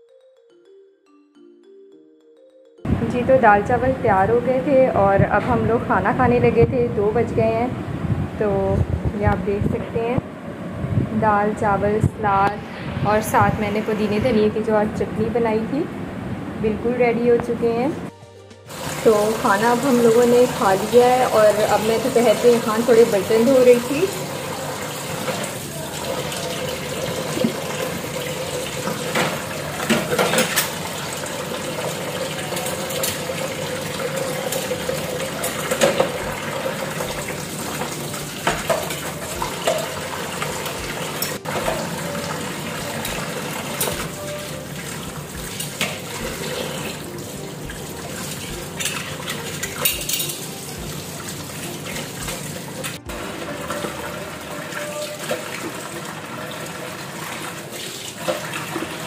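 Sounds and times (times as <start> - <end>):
tap water running into sink: 18.7 - 59.0
plates and cutlery clinking: 29.0 - 30.9, 34.1 - 36.2, 37.8 - 42.2, 48.7 - 50.8.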